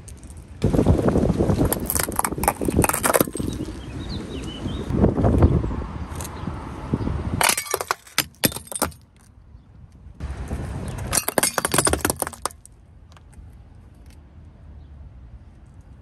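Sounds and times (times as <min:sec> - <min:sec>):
ceramic mask cracking under tyre: 0:01.6 - 0:03.7
shards crunching and clinking: 0:01.7 - 0:03.8, 0:07.4 - 0:09.3, 0:11.1 - 0:12.7.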